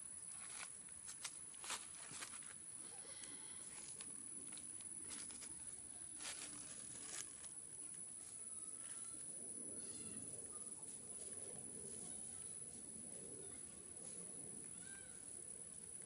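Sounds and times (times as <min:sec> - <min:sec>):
steady outdoor hiss: 0:00.0 - 0:16.0
dry leaves crackling underfoot: 0:03.8 - 0:07.6.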